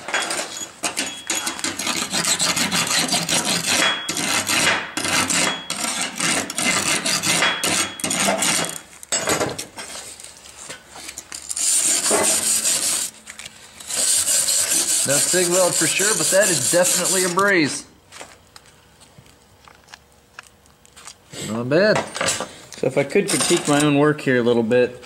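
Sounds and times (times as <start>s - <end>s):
wire brush scraping metal: 1.4s - 8.8s, 11.4s - 17.7s.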